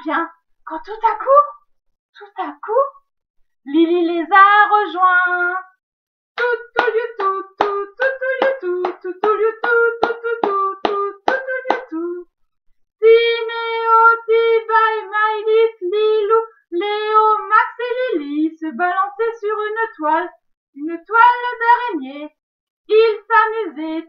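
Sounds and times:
woman singing unaccompanied: 3.6 - 5.8, 6.4 - 12.4, 13.0 - 24.0.

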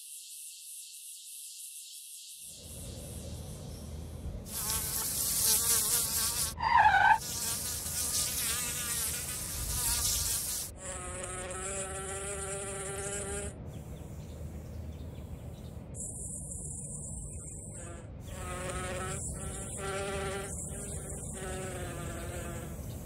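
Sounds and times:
fly buzzing: 0.0 - 3.2, 4.5 - 13.5, 17.8 - 23.0.

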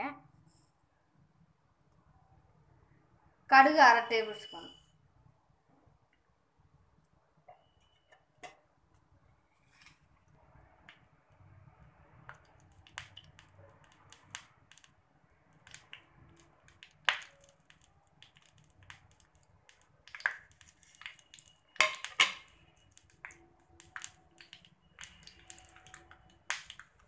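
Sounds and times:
mustard seeds popping in oil: 12.2 - 27.0
oil sizzling: 12.2 - 27.0.

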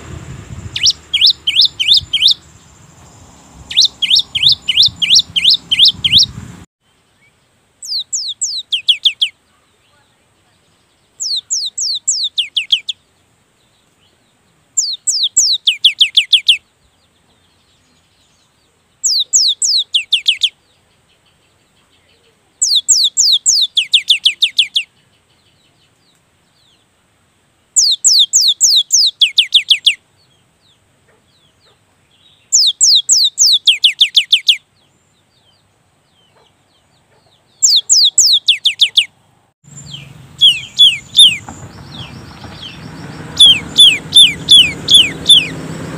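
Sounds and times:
tit bird singing whistled notes: 0.7 - 2.8, 3.4 - 6.4, 7.1 - 9.4, 10.7 - 13.1, 14.8 - 16.7, 19.0 - 21.4, 22.6 - 25.6, 27.8 - 30.3, 32.2 - 34.7, 37.5 - 39.1, 39.7 - 45.6.

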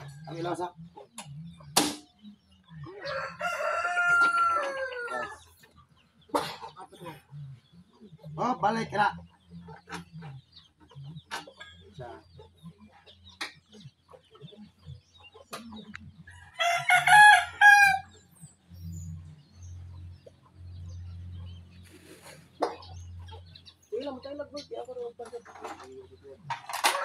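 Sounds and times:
rooster crowing: 3.0 - 5.4, 16.5 - 18.1.

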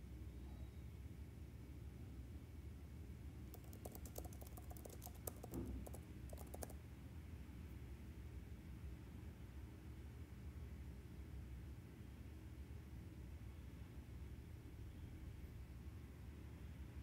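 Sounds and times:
faint low hum: 0.0 - 17.0
typing keystrokes: 3.5 - 6.8.

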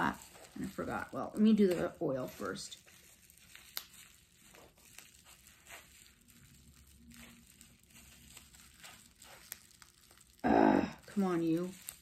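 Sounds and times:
plastic wrapping crinkling: 0.0 - 12.0.

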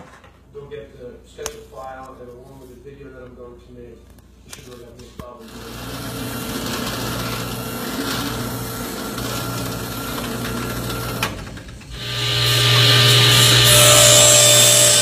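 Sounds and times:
electric woodworking tool humming: 5.4 - 15.0.

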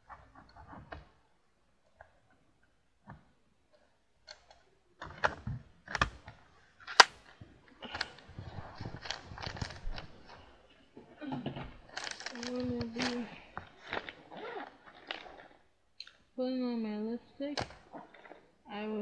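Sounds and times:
rattling and rustling: 5.0 - 15.6
small objects clicking: 11.8 - 16.2.

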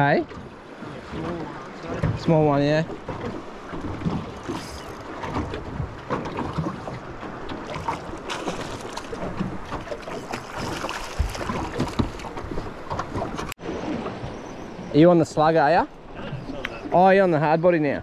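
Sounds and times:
water lapping against boat hull: 0.0 - 17.6.

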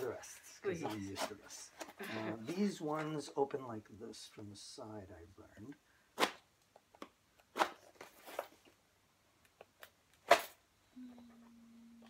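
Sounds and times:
cardboard rustling: 7.6 - 8.8.

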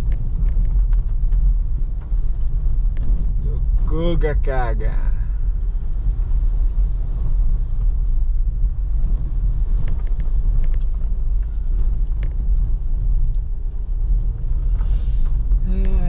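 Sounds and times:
light sharp ticks: 0.0 - 3.3, 9.7 - 13.5
car engine rumble: 0.0 - 16.0
road noise: 0.0 - 16.0.

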